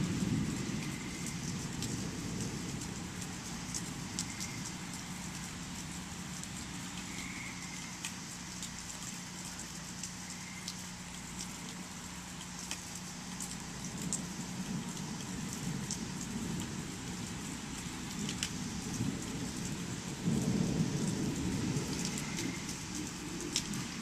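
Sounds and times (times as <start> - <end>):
low rumble of thunder: 0.0 - 8.5, 13.4 - 24.0
steady rain falling: 0.0 - 24.0
sharp drips: 0.4 - 24.0.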